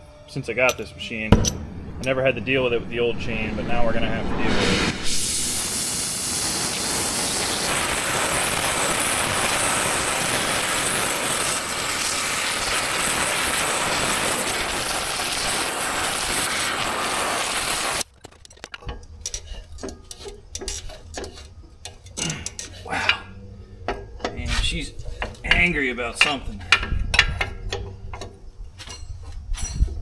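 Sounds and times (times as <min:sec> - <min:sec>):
loud steady hiss: 0:00.0 - 0:18.1.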